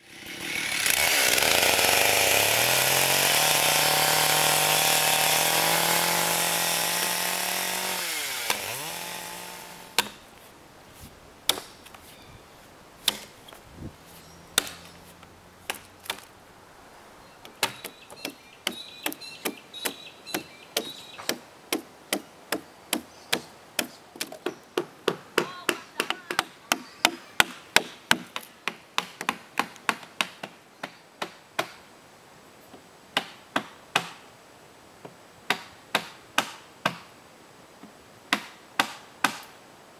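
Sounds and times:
chainsaw running: 0.0 - 10.2
chopping into log: 9.9 - 10.2, 11.5 - 12.0, 13.0 - 13.4, 14.6 - 14.9, 15.6 - 16.3, 17.5 - 31.8, 33.2 - 34.2, 35.5 - 37.0, 38.3 - 39.5.

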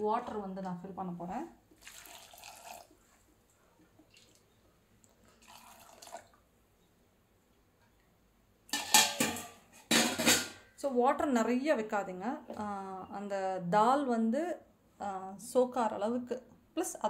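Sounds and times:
water pouring into pot: 1.8 - 3.0, 5.2 - 6.4.

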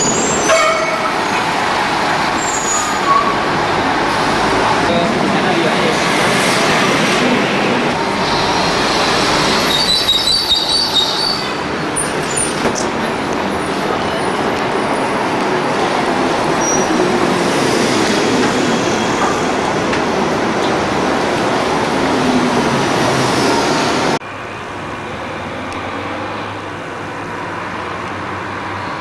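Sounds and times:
trolleybus passing: 0.0 - 29.0
high-pitched squeal: 8.0 - 12.7.

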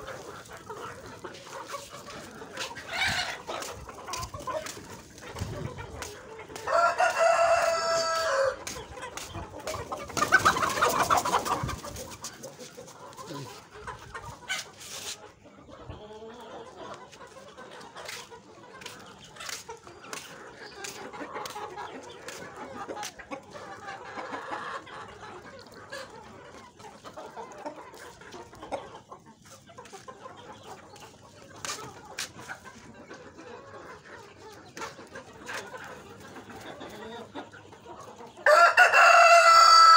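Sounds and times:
chickens clucking: 0.0 - 39.9
rooster crowing: 6.7 - 8.6, 38.4 - 39.9.

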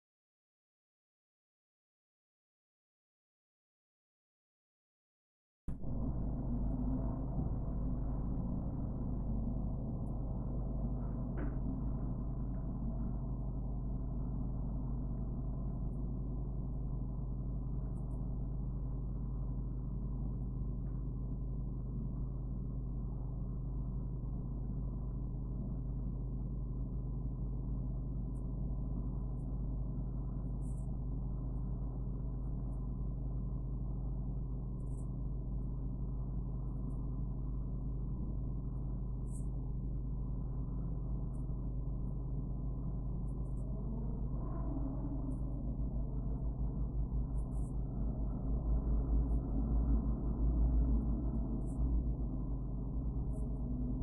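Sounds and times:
low hum: 5.7 - 54.0
faint high tone: 43.4 - 48.4.

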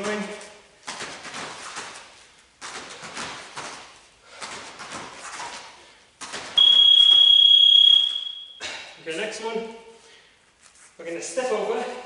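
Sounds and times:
electronic timer beep: 6.6 - 8.6.

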